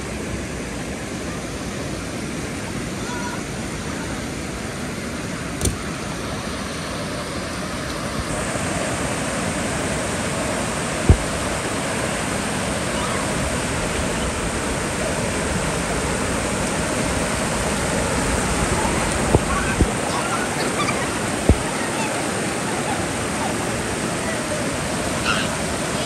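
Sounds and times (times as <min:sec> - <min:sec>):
water rushing over weirs: 0:00.0 - 0:26.0
dull thump: 0:05.6 - 0:05.9, 0:11.1 - 0:11.3.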